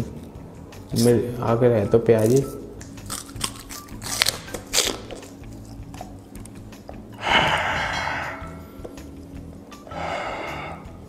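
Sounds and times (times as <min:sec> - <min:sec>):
crunching raw onion: 0:02.2 - 0:06.6
person chewing: 0:02.8 - 0:06.6
open-mouthed breath out: 0:07.2 - 0:08.8, 0:09.9 - 0:11.0.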